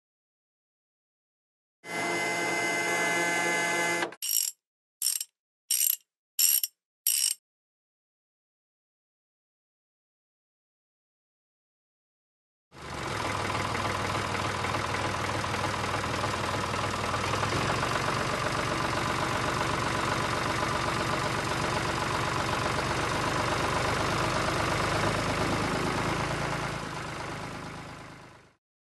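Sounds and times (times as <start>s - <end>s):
tractor engine running: 12.8s - 28.5s.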